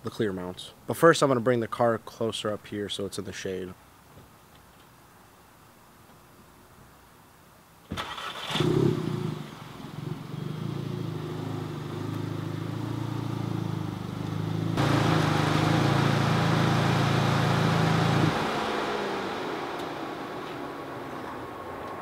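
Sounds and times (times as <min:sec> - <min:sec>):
car engine driving slowly: 0:08.0 - 0:22.0.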